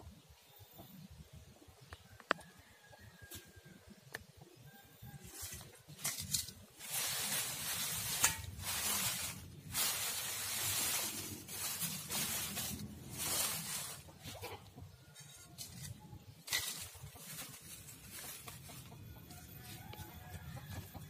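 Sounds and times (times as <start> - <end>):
dry leaves rustling and crackling: 5.0 - 20.9.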